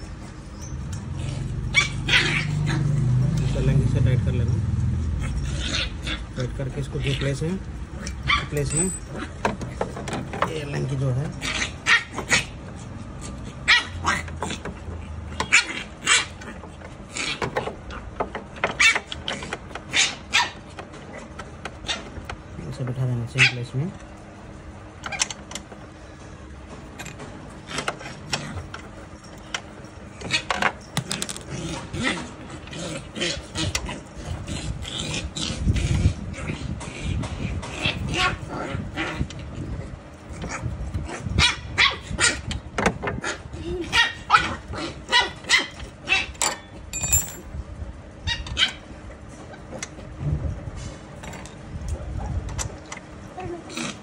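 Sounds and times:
allen key clicking and scraping: 8.0s - 10.8s, 27.0s - 31.8s, 45.7s - 47.5s
dog barking: 13.7s - 14.2s, 43.9s - 46.3s.

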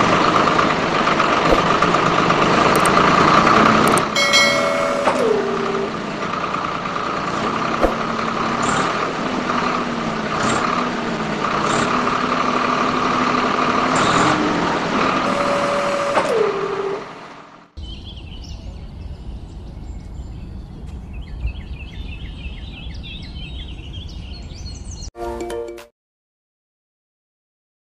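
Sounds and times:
small electric motor whining: 15.2s - 17.1s.

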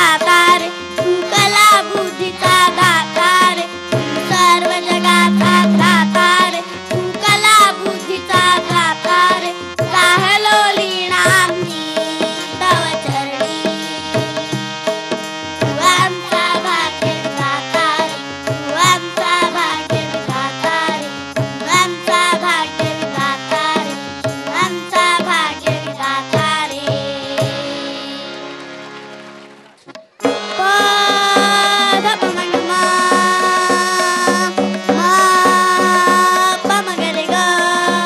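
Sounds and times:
harmonium notes: 0.0s - 38.0s
tabla beat: 0.0s - 38.0s
girls singing: 4.2s - 9.4s.

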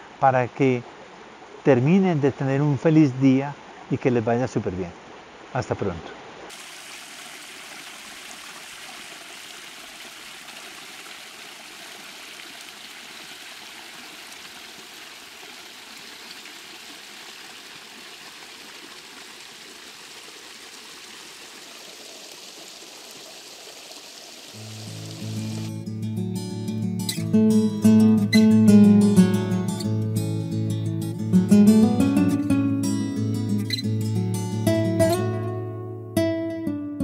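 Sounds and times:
water splashing over rocks: 6.5s - 25.8s
acoustic guitar music: 24.6s - 37.0s.

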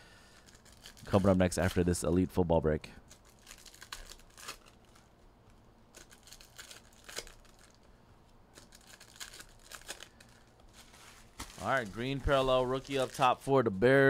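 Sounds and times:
wrapper crinkling and tearing: 0.2s - 1.9s, 3.0s - 13.5s
cards being handled: 8.5s - 13.4s.

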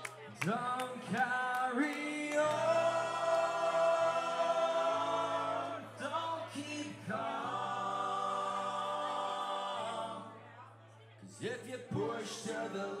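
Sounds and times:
men singing in harmony: 2.2s - 10.3s, 11.6s - 13.0s.

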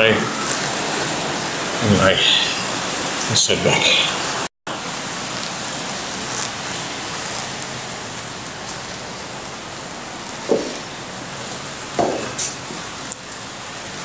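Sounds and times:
water running and dripping: 4.2s - 14.0s
soft knock: 10.5s - 10.8s, 12.0s - 12.3s.

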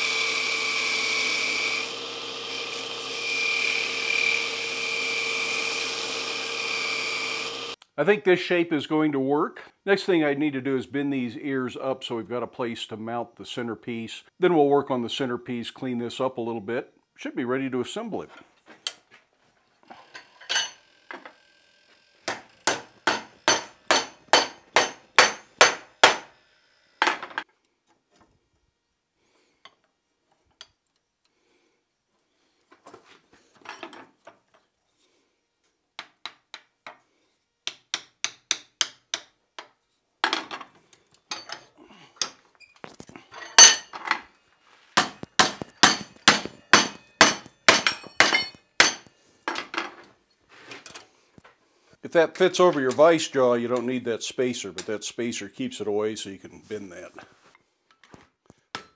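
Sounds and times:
hammer striking hot iron: 22.2s - 26.3s, 43.6s - 43.9s, 45.0s - 49.1s.

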